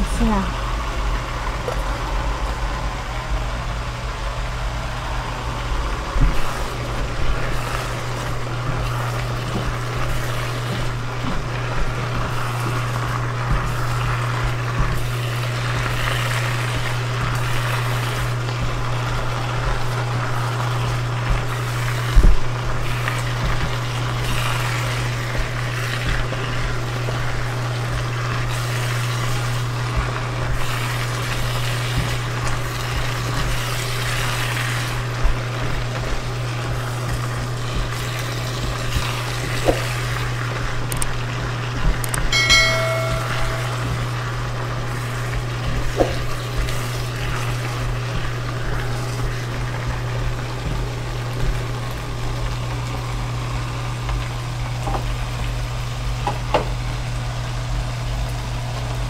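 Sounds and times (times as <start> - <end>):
vegetables sizzling in a wok: 0.0 - 59.0
spatula knocking on wok: 42.4 - 44.1.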